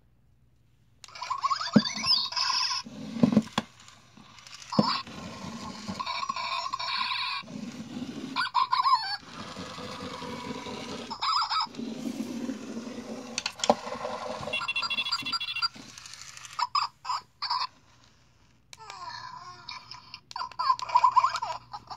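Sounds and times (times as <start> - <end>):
toy motor running on carpet: 1.1 - 16.8.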